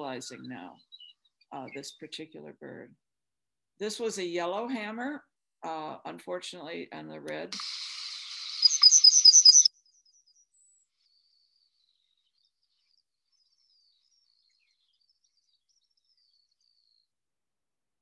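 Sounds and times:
recording hiss: 7.5 - 9.7
bird song high thin notes: 7.6 - 10.8.

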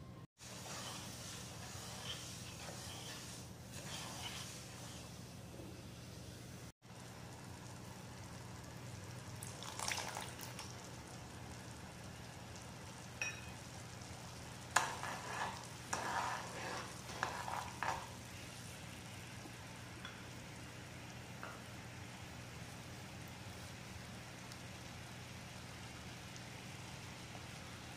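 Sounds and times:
metal spoon scraping a pan: 0.4 - 5.2, 14.7 - 18.2
sugar syrup bubbling in a pan: 6.8 - 27.9.

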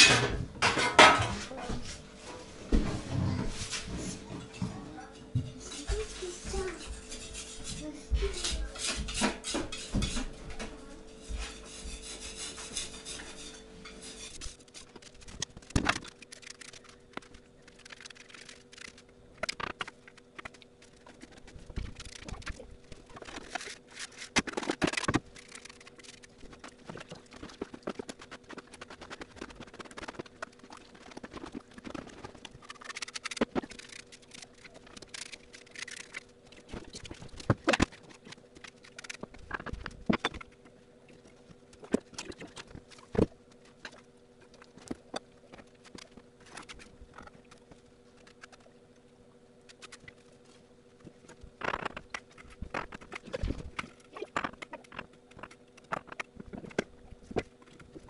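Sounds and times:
faint hum: 0.0 - 58.0
mortar scraping: 11.2 - 17.0.

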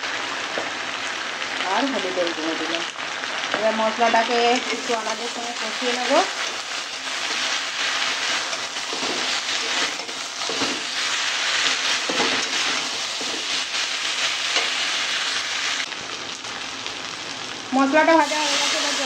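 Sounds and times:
vegetables sizzling in hot oil: 0.0 - 19.0
spatula scraping metal pan: 8.3 - 11.0.

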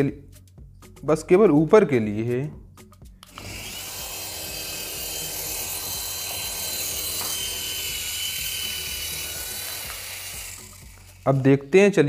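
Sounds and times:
toy helicopter motor whining: 3.2 - 11.9.

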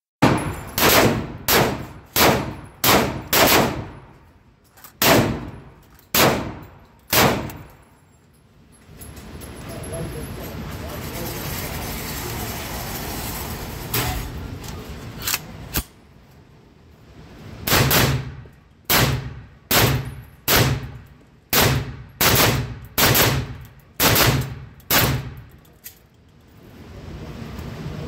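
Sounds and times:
loud gunshots indoors: 0.2 - 4.1, 5.0 - 7.7, 17.6 - 25.4.

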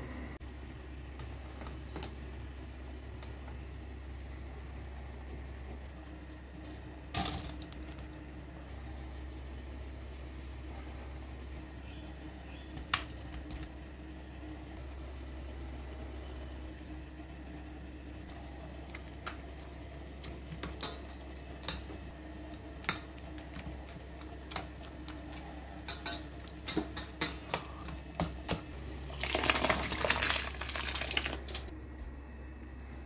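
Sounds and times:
fruit and juice splashing into pot: 29.0 - 31.7.

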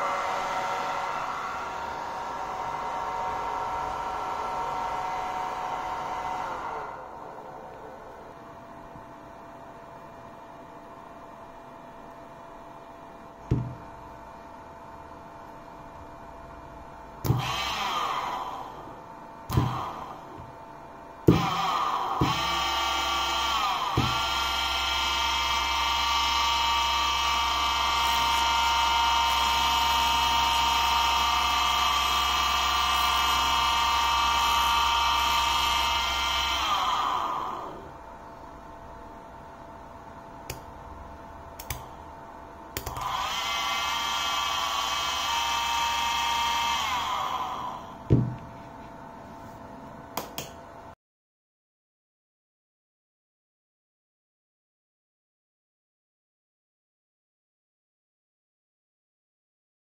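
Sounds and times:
electric motor whining: 17.2 - 20.5, 21.3 - 38.0, 42.8 - 48.1
sharp click: 50.2 - 50.6.

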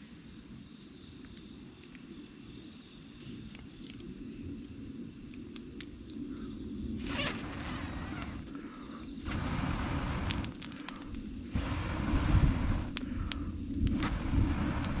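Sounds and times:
low steady noise: 6.2 - 15.0
wood fire crackling: 7.0 - 15.0.

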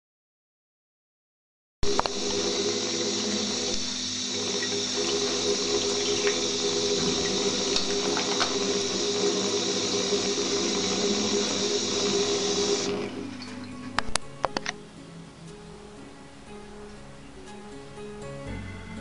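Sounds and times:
tap running into washbasin: 1.8 - 14.7.

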